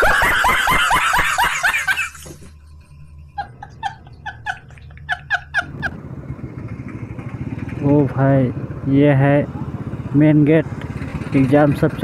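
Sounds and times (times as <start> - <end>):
man laughing: 0.0 - 2.5, 3.2 - 6.0
high squeaky wheezing laughs: 0.0 - 2.6
motorcycle engine and road noise: 0.0 - 12.0.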